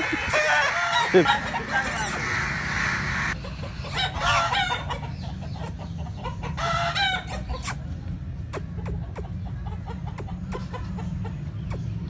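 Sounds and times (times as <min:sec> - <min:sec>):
rooster crowing: 0:00.0 - 0:03.4
steady low hum: 0:00.0 - 0:04.3
chicken clucking: 0:00.0 - 0:07.7.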